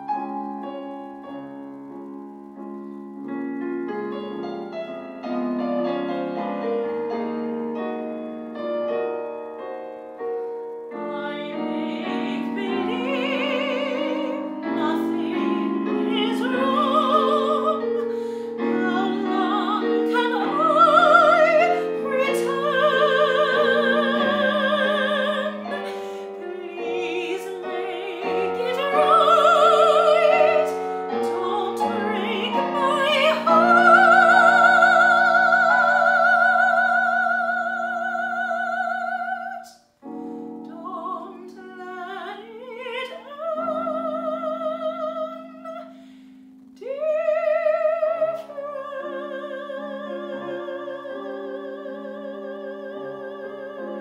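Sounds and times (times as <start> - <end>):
piano accompaniment: 0.0 - 54.0
soprano singing with vibrato: 10.5 - 46.1, 46.8 - 54.0.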